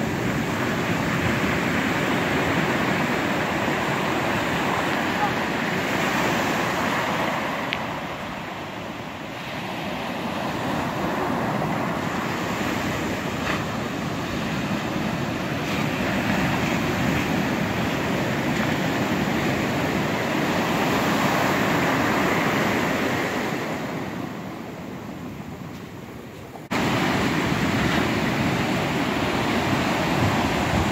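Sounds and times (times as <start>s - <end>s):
ocean surf breaking on beach: 0.0s - 30.9s.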